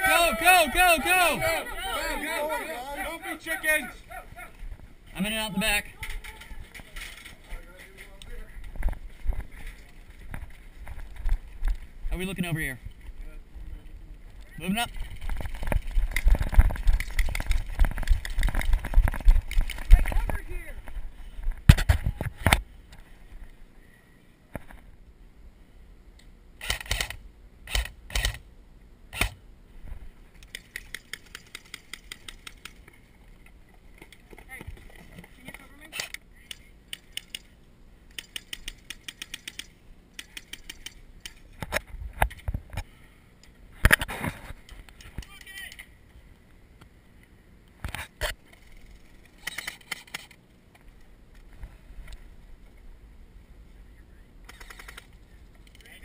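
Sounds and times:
magazine winding clicks: 26.6s - 28.4s, 38.1s - 41.4s, 48.5s - 50.4s, 54.5s - 55.8s
rapid airsoft rifle fire: 26.6s - 28.4s, 29.1s - 29.4s, 54.5s - 55.1s
airsoft rifle bursts: 54.5s - 55.1s.

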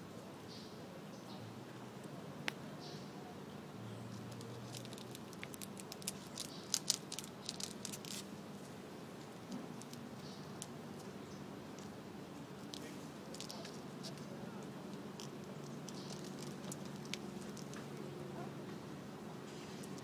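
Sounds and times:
squirrel gnawing stalk: 4.1s - 18.3s, 19.5s - 20.0s.

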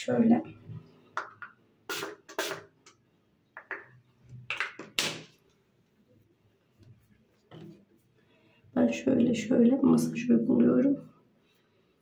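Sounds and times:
spray bottle spritzing: 1.9s - 2.8s.

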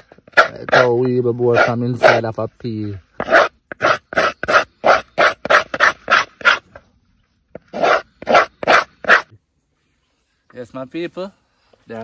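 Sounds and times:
knife scraping gourd shell: 0.0s - 2.4s, 3.1s - 6.8s, 7.6s - 9.3s.

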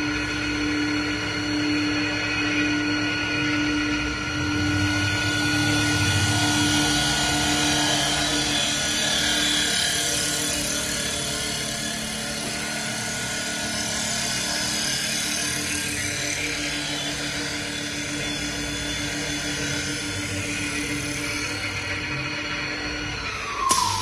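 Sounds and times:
wood lathe running: 4.0s - 22.6s.

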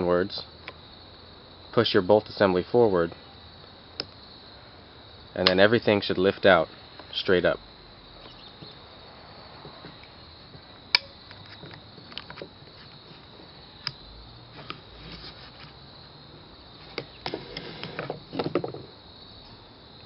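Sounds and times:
airsoft gun parts clicking and rattling: 10.9s - 12.5s.

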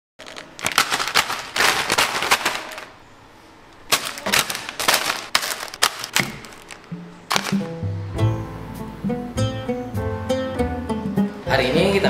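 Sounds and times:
plastic wrapping crinkling: 0.2s - 3.0s, 3.9s - 7.8s.

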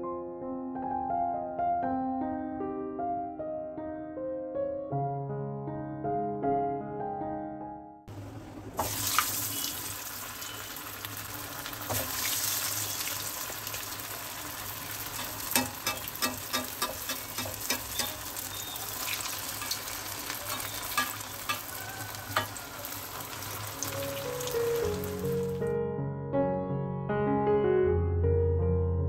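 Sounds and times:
food sizzling in hot oil: 8.7s - 25.7s
metal spatula clinking on pan: 15.1s - 18.6s, 19.6s - 22.6s.

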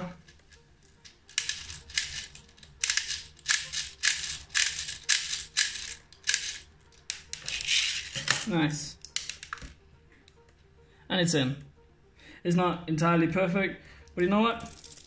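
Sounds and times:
plastic clicks and rattles: 0.2s - 9.8s.

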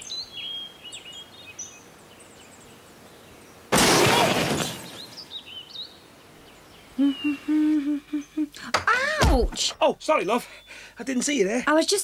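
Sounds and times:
birds chirping: 0.0s - 12.0s
loud crash: 3.7s - 5.0s.

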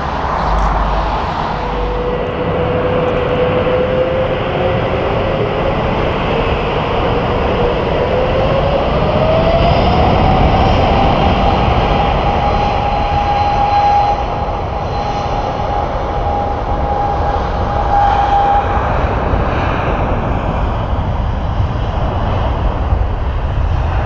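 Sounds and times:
steady rumble: 0.0s - 9.1s
jet engines whining: 0.0s - 24.0s.

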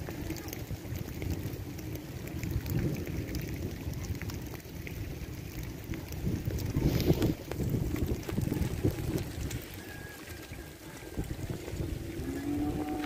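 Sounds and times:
wind buffeting microphone: 0.0s - 13.0s.

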